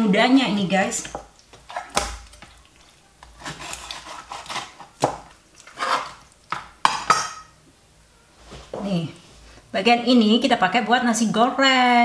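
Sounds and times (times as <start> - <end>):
scraping and rubbing of meat: 1.0 - 6.8
knife cutting raw chicken: 1.1 - 6.7.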